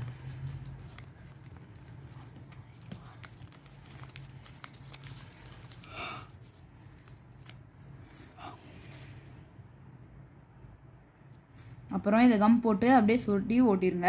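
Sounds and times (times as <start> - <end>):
paper crackling and rustling: 0.0 - 8.4.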